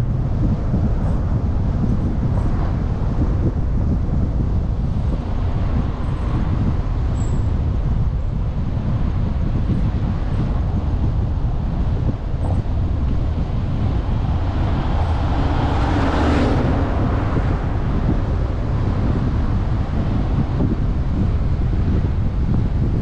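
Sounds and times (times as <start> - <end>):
car road noise: 0.0 - 23.0
wind buffeting microphone: 0.0 - 23.0
oncoming car passing: 12.8 - 20.8.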